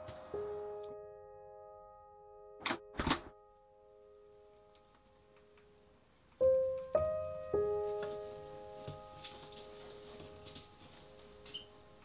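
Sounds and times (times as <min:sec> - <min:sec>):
piano chord and notes: 0:00.0 - 0:12.0
wooden door latching shut: 0:02.6 - 0:03.4.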